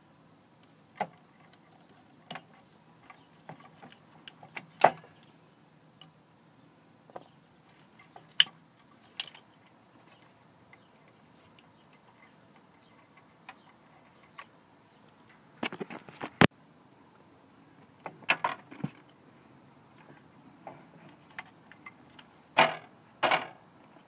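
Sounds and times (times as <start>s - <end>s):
wires and connectors clicking: 7.1s - 16.5s.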